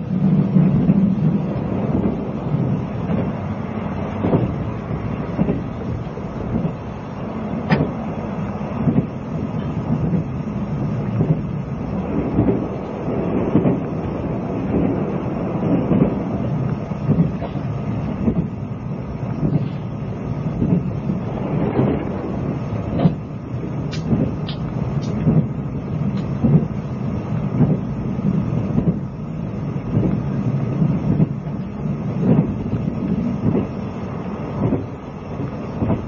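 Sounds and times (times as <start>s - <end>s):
train carriage low rumble: 0.0s - 36.0s
wheel and car body rattles: 7.5s - 36.0s.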